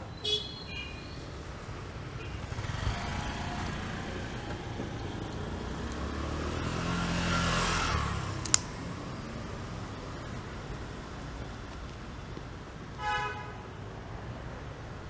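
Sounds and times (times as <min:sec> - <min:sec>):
low rumble of street traffic: 0:00.0 - 0:15.0
sharp click: 0:08.4 - 0:08.8.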